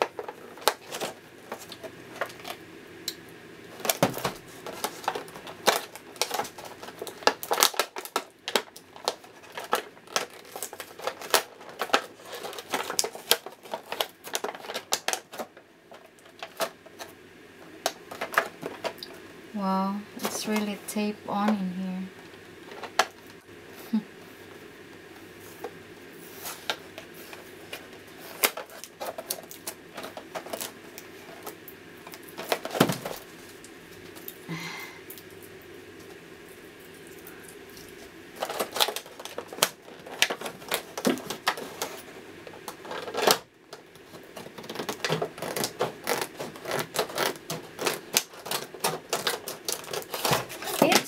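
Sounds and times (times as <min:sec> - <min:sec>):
plastic packaging crackling: 0:00.0 - 0:19.5, 0:20.2 - 0:23.4, 0:25.6 - 0:51.0.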